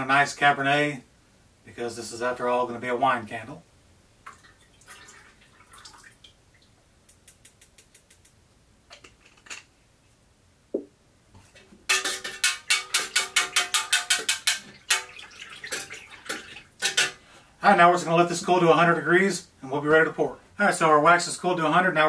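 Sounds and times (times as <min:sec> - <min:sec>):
faint small ticks: 0:07.0 - 0:08.4
utensil clinking against metal pitcher: 0:11.9 - 0:17.2.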